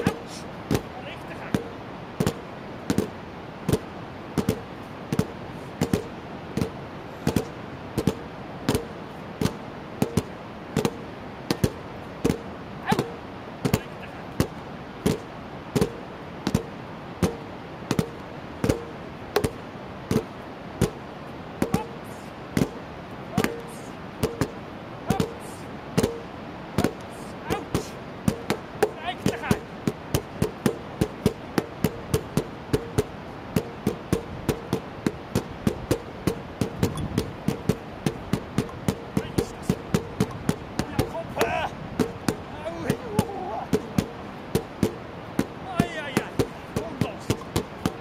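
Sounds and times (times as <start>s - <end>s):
background hiss: 0.0s - 48.0s
drumming on plastic buckets: 27.7s - 48.0s.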